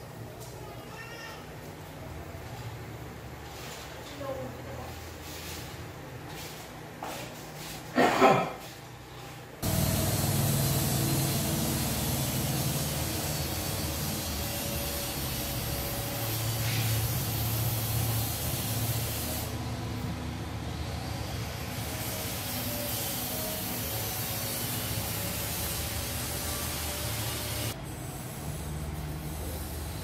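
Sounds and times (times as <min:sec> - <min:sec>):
steady rushing hiss: 0:09.6 - 0:19.7.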